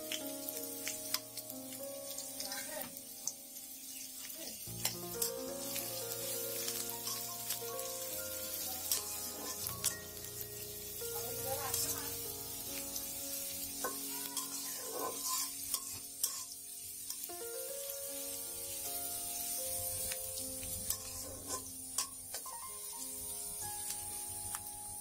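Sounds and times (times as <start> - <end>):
onion and garlic sizzling in oil: 0.0 - 25.0
metal spatula scraping pan: 8.9 - 9.7, 13.8 - 17.2, 20.8 - 22.2.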